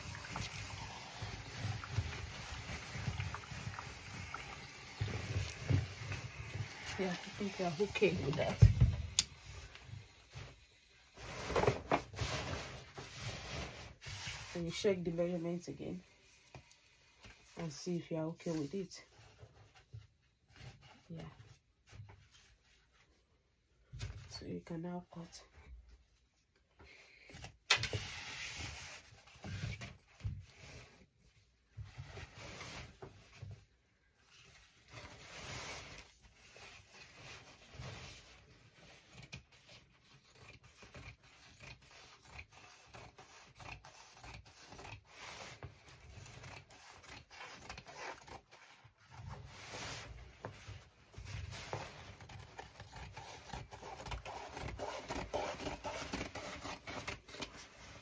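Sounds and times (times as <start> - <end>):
fabric rustling and rubbing: 9.5 - 23.8, 28.0 - 40.2, 44.2 - 58.0
scissors snipping fabric: 52.2 - 57.5.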